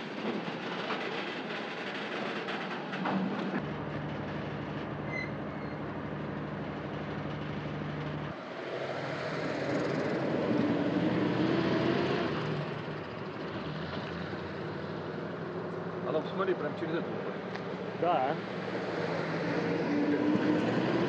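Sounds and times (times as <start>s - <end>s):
diesel locomotive engine hum: 0.0s - 21.0s
rail noise: 0.0s - 21.0s
loud rumble with wavering hum: 3.3s - 11.4s.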